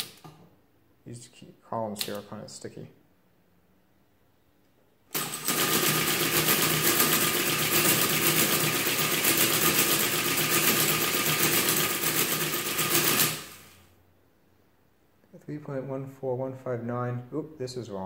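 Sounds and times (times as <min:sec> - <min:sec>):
mechanical calculator clattering: 0:05.2 - 0:13.6.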